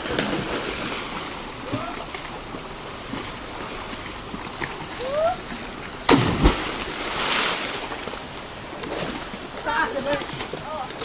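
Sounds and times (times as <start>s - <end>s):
river water flowing: 0.0s - 11.0s
swimmers splashing: 0.0s - 11.0s
person calling out: 5.0s - 5.4s
sharp thumps: 6.1s - 7.0s.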